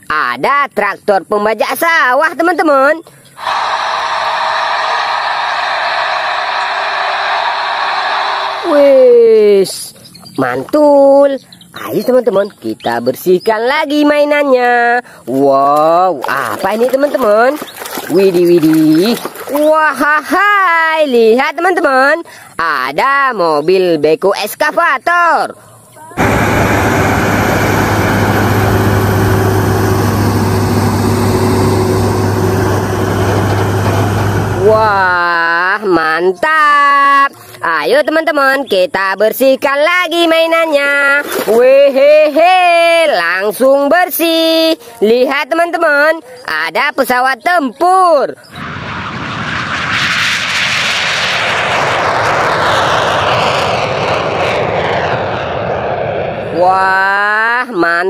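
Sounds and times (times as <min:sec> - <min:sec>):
jet engines roaring: 0:03.4 - 0:09.2, 0:26.2 - 0:35.5, 0:48.4 - 0:57.8
whine sliding down in pitch: 0:03.4 - 0:09.4, 0:26.2 - 0:35.4, 0:48.4 - 0:57.1
heavy diesel truck engine droning: 0:26.2 - 0:35.2.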